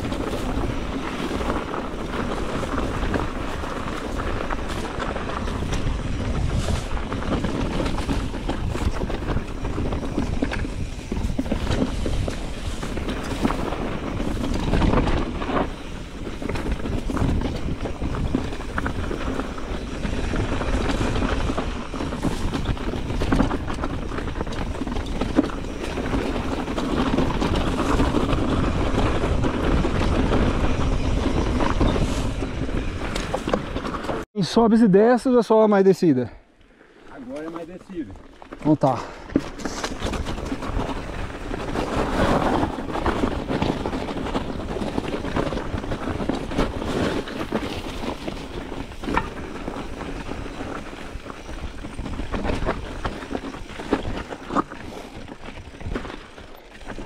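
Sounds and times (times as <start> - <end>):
bike knocks and rattles: 0.0 - 34.2, 37.4 - 57.0
wind rushing on microphone: 0.0 - 34.2.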